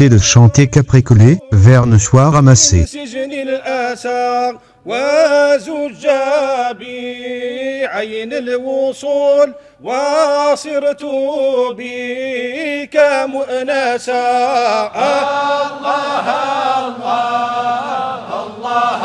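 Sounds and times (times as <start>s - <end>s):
men chanting: 10.0s - 19.0s.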